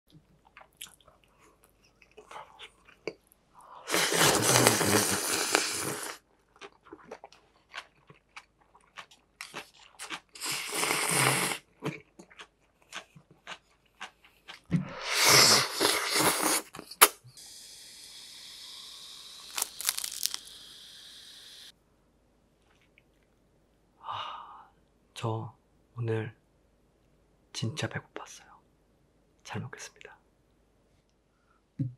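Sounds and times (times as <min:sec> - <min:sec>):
soft chewing: 0:00.1 - 0:03.4, 0:06.2 - 0:14.9, 0:22.6 - 0:23.8
loud slurping: 0:03.9 - 0:06.2, 0:10.4 - 0:11.6, 0:14.8 - 0:21.7
wet mouth clicks: 0:13.0 - 0:17.2, 0:18.6 - 0:20.6
steady hiss: 0:15.0 - 0:21.7.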